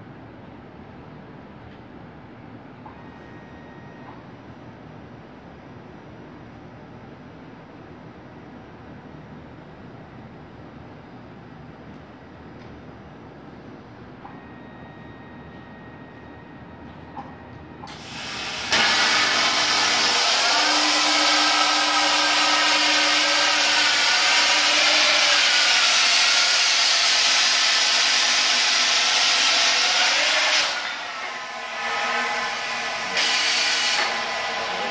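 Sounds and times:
air hiss: 17.9 - 34.9
plasma torch hissing: 17.9 - 34.9.

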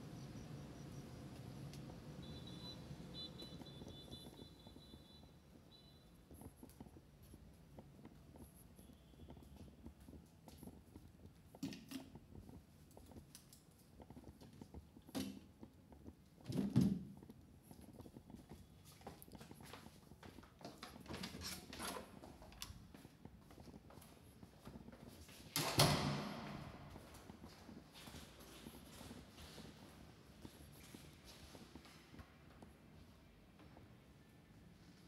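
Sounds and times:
low background noise: 0.0 - 35.0.

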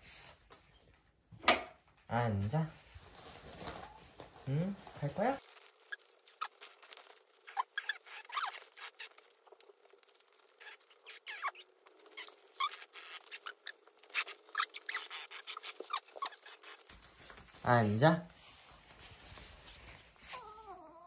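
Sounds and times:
plastic raincoat crinkling: 2.8 - 14.9
short squeaks: 5.6 - 9.7, 10.4 - 16.9.

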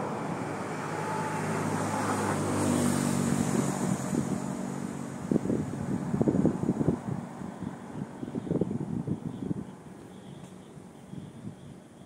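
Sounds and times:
vehicle engine passing: 0.0 - 9.6
wind buffeting microphone: 3.1 - 10.0.

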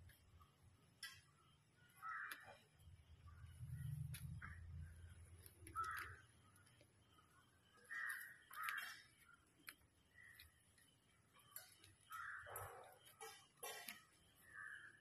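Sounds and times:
crow cawing: 2.0 - 2.6, 5.8 - 6.2, 7.8 - 9.1, 12.1 - 12.8, 14.4 - 14.9.

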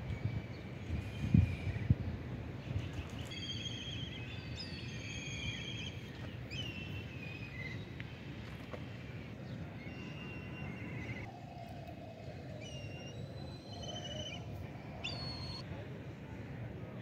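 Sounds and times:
outdoor background noise: 0.0 - 17.0
birds whistling calls: 3.1 - 7.9, 9.8 - 11.3, 12.6 - 15.6.

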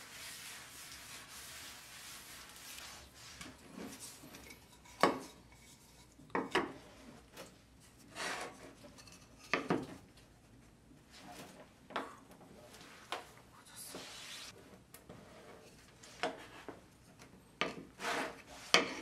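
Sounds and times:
paper rubbing on wood: 0.0 - 3.6.

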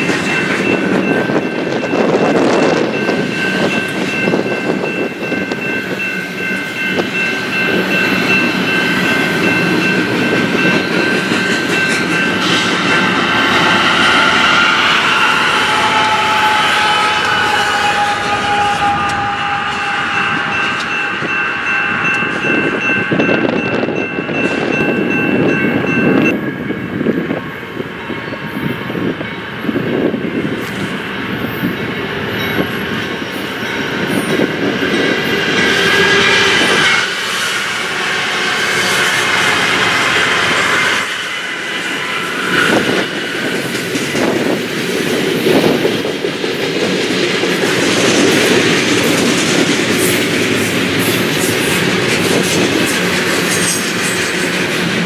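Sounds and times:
train wheels clattering on rails: 0.0 - 27.4, 28.4 - 55.0
diesel locomotives passing: 0.0 - 55.0.

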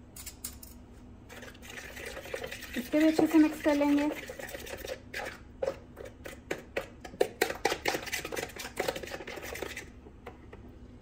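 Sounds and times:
utensil tapping and scraping bowl: 1.3 - 10.7.

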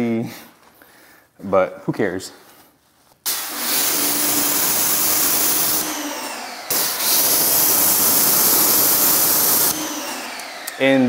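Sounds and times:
pressure washer water jet hiss: 3.3 - 9.8.

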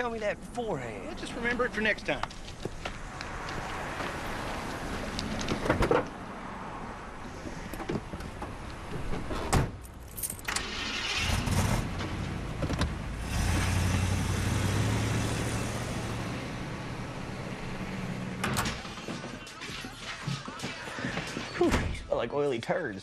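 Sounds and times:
van engine starting and running: 6.8 - 19.7.

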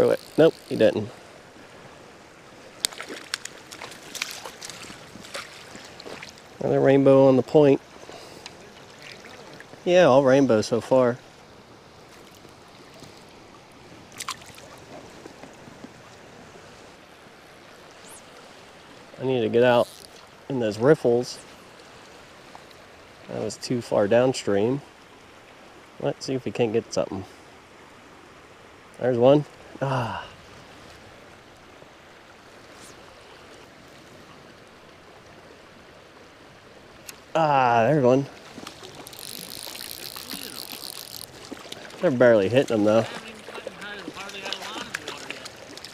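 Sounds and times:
creek water flowing: 0.0 - 45.9
short water splashes: 2.8 - 6.8, 8.0 - 9.8, 12.1 - 16.3, 37.0 - 45.9.

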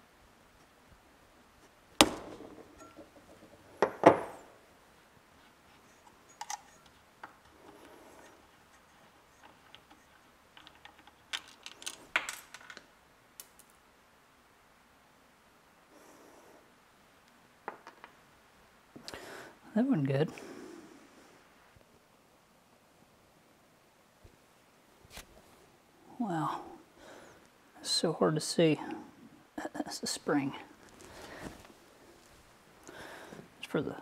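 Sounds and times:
small metal parts clinking: 8.7 - 13.8.

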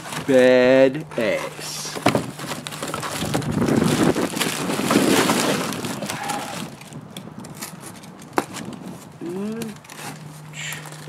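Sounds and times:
cardboard scraping: 0.0 - 11.0
bubble wrap crinkling: 2.2 - 11.0.

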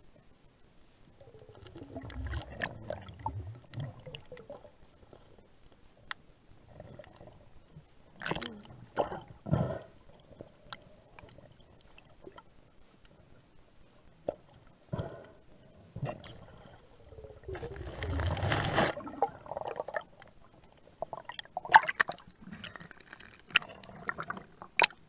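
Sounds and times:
underwater gurgling and knocks: 1.4 - 4.6.

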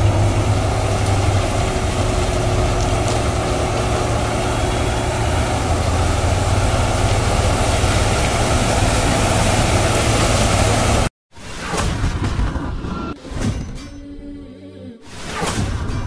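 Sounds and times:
harvester engine and machinery drone: 0.0 - 11.1
tractor engine running: 0.0 - 11.1.

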